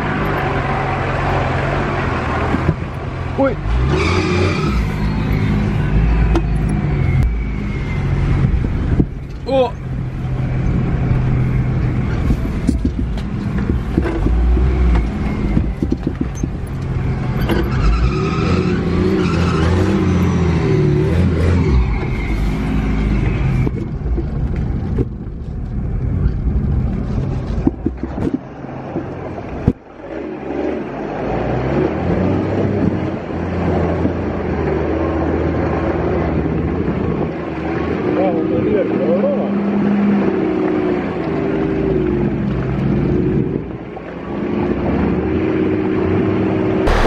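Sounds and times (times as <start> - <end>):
off-road vehicle engine labouring: 0.0 - 47.0
vehicle knocks and rattles: 12.6 - 17.8, 23.6 - 25.8, 26.9 - 29.9.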